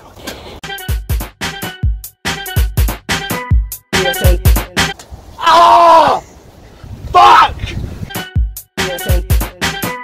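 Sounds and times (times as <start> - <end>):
drum machine beat: 0.7 - 5.0, 8.2 - 10.0.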